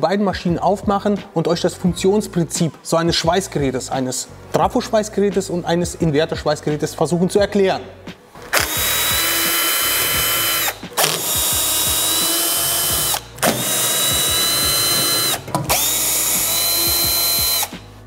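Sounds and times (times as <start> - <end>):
cordless drill whirring: 8.5 - 17.7.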